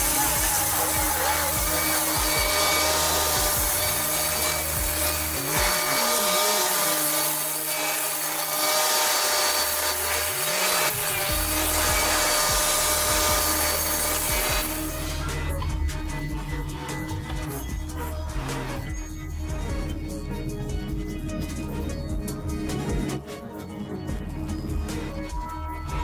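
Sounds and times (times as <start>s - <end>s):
forestry mulcher grinding brush: 0.0s - 18.8s.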